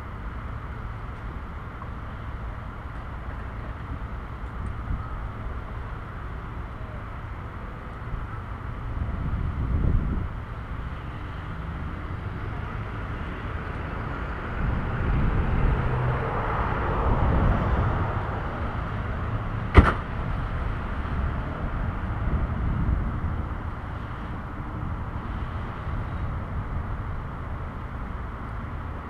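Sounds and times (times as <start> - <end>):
car passing: 10.5 - 26.2.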